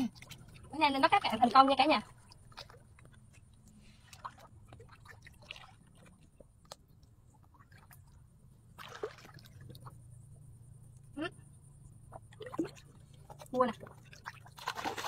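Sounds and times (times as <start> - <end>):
hands splashing in muddy water: 14.1 - 15.0.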